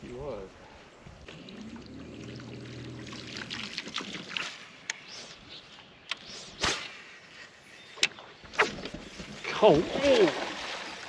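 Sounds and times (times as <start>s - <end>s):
sharp snap: 6.1s - 6.9s.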